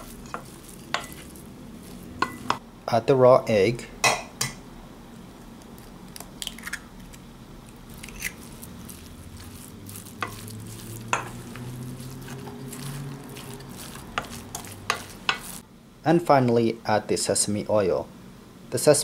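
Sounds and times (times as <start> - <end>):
wooden spoon stirring filling: 0.0 - 2.6, 7.9 - 15.6
low steady hum: 0.0 - 18.9
egg cracking on metal bowl: 7.9 - 11.9.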